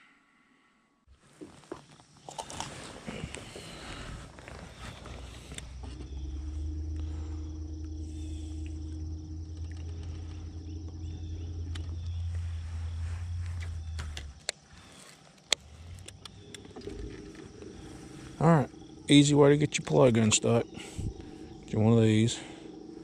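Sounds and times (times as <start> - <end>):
electric motor humming: 5.4 - 14.4.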